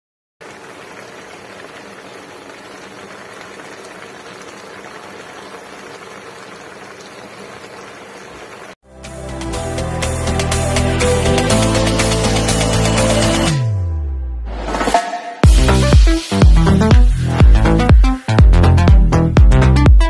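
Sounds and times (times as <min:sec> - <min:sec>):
broth boiling in a wok: 0:00.4 - 0:08.8.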